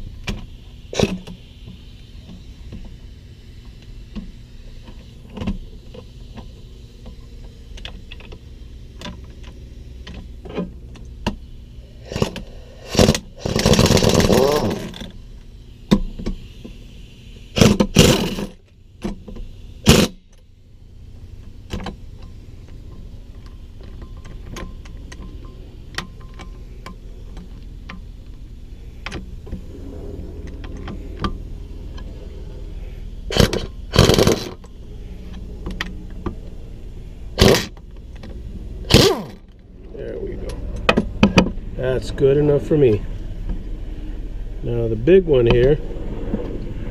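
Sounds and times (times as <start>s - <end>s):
steady low hum: 0.0s - 46.9s
impact wrench driving bolts: 12.1s - 15.1s, 17.6s - 20.2s, 33.3s - 34.6s, 37.4s - 37.8s, 38.9s - 39.4s.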